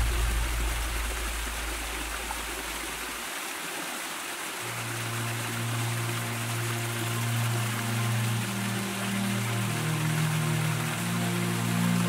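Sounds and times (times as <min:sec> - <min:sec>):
low sustained note: 0:00.0 - 0:03.1, 0:04.6 - 0:12.0
stream rushing over rocks: 0:00.0 - 0:12.0
background music: 0:04.6 - 0:12.0.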